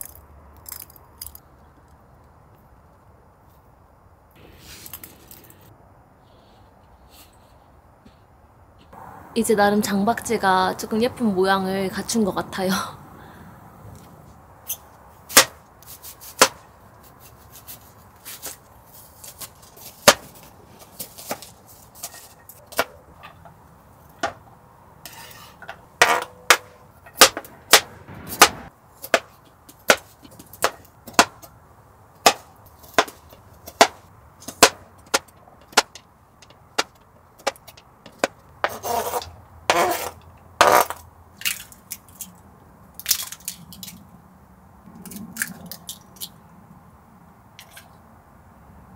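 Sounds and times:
rough cutting sounds: 37.5 - 42.2.

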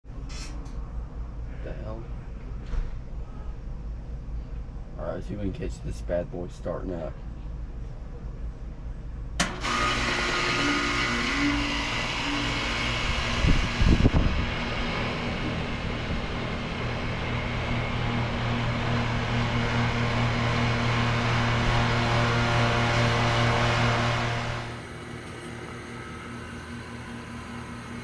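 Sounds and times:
compressor hum and fan: 0.0 - 28.0
low rumble: 13.0 - 20.5.

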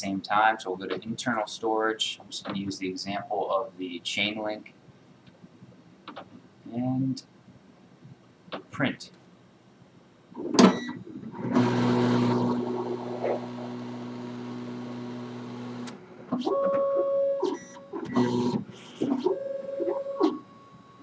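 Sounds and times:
pitched motor whine: 11.4 - 16.0.

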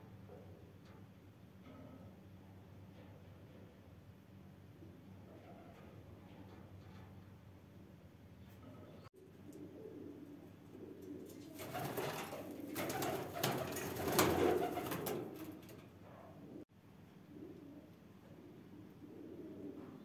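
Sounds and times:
pigeons cooing: 8.7 - 16.6, 17.2 - 20.0.

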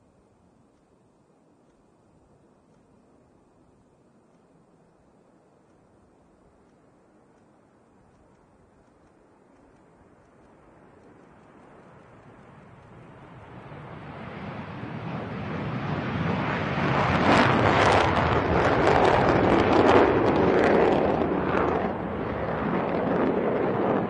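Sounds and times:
jet bomber taking off: 10.4 - 24.0.

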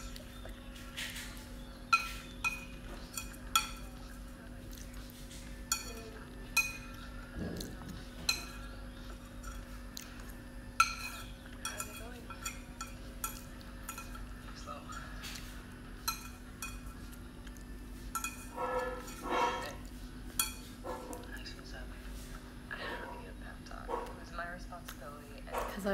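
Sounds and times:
chopsticks clinking against bowl: 1.0 - 21.4.

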